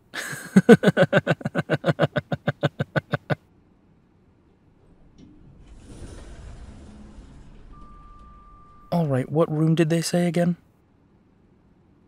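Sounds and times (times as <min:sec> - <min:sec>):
man laughing: 0:00.0 - 0:03.4
faint steady hum: 0:00.0 - 0:12.0.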